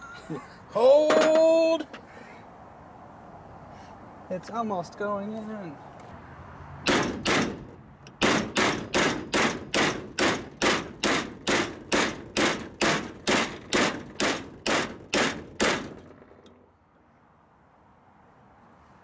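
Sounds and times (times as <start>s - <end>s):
hammer striking steel: 6.9s - 16.0s.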